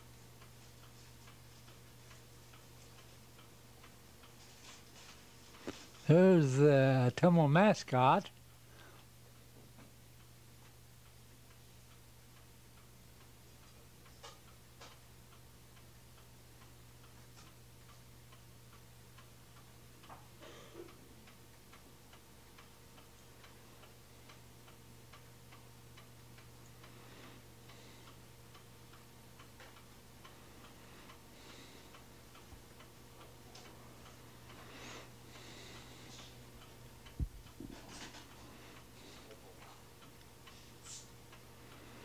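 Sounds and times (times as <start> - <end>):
faint steady hum: 0.0 - 42.0
light ticking: 20.9 - 37.6, 38.6 - 42.0.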